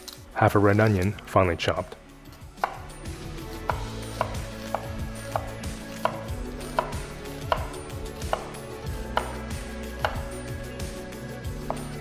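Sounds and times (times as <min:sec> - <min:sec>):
knife chopping on wooden board: 0:02.6 - 0:02.9, 0:03.6 - 0:10.3, 0:11.6 - 0:12.0.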